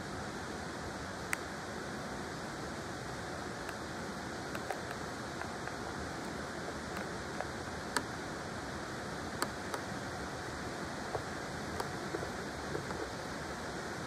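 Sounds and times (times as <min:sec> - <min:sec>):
small sharp ticks: 0:01.2 - 0:01.5, 0:04.5 - 0:08.1, 0:11.1 - 0:13.1.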